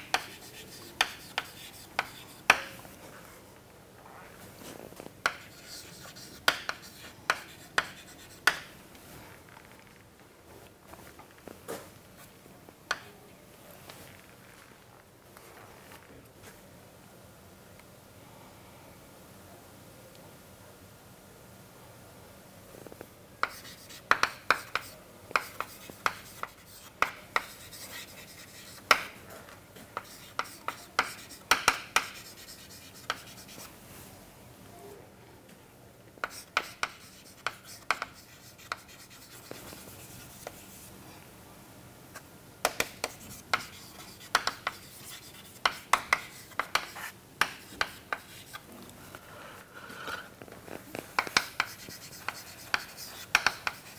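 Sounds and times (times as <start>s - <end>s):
chalk tapping and scratching: 0.0s - 2.9s, 5.2s - 8.8s, 23.4s - 29.2s, 29.8s - 33.7s, 36.2s - 40.9s, 42.6s - 48.7s, 50.7s - 53.9s.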